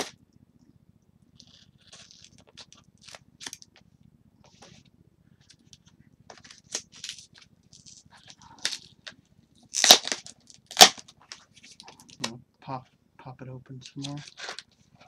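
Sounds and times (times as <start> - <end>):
parcel wrapping rustling: 14.0 - 15.0.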